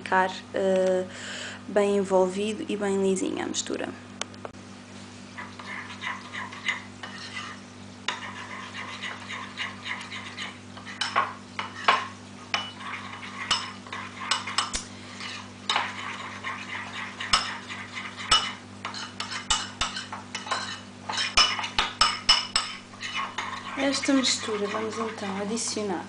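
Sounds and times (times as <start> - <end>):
spoon scraping ceramic bowl: 5.4 - 25.7.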